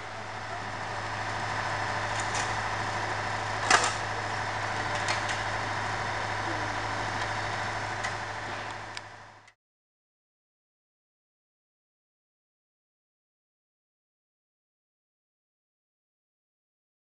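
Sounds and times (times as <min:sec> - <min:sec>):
heavy engine running: 0:00.0 - 0:09.6.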